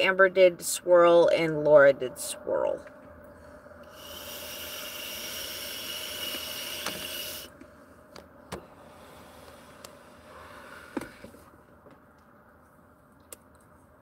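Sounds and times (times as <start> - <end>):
vape hissing: 3.8 - 7.6.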